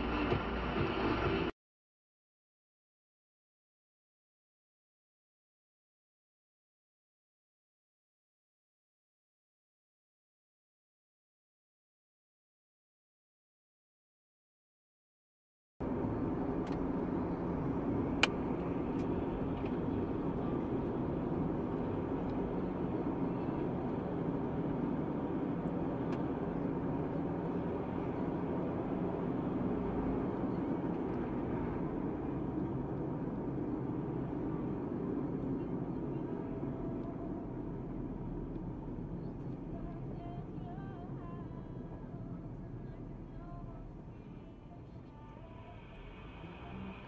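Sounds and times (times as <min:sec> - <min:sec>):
car road and engine noise: 0:00.0 - 0:01.6, 0:15.8 - 0:47.0.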